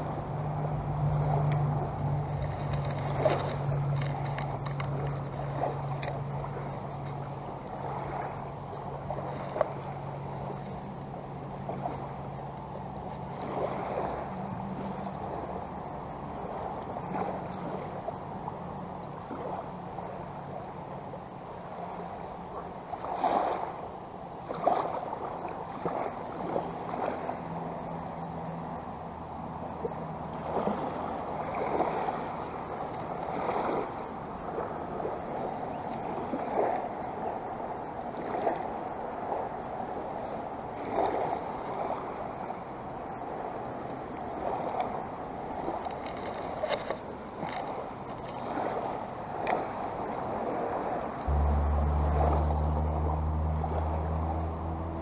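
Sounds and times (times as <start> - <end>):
low steady hum: 0.0 - 23.1, 49.3 - 55.0
water splashing: 0.0 - 28.8, 29.7 - 42.6, 43.2 - 55.0
seawater lapping at shoreline: 0.0 - 55.0.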